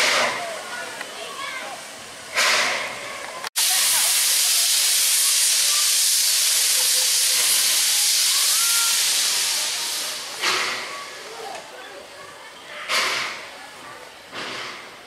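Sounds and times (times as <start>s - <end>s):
steam locomotive hissing: 0.0s - 15.0s
sharp steam burst: 1.6s - 11.4s, 12.8s - 13.5s, 14.3s - 15.0s.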